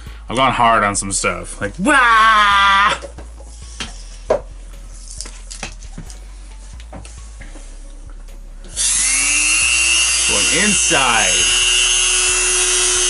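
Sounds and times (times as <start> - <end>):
rotary tool whine: 8.6 - 13.0.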